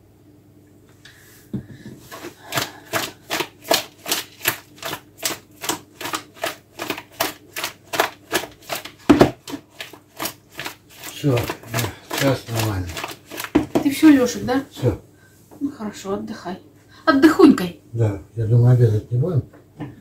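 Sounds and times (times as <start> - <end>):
fish slapping in plastic bowl: 2.0 - 14.3.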